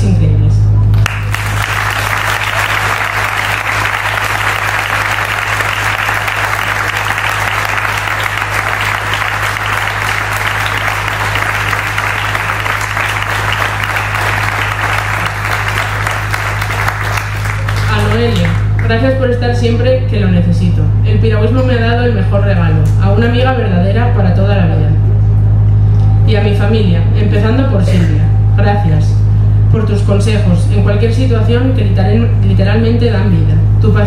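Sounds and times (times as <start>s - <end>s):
low electrical hum: 0.0s - 34.0s
audience applauding: 1.0s - 18.9s.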